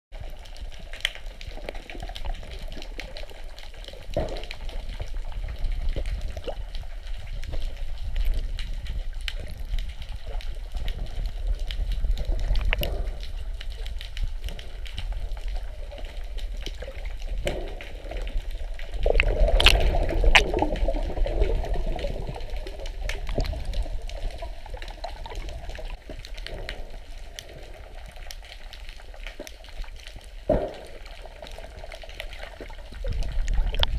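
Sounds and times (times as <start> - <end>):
underwater low rumble: 0.1 - 33.9
water rushing: 0.4 - 33.9
underwater clicks and pops: 0.9 - 33.9.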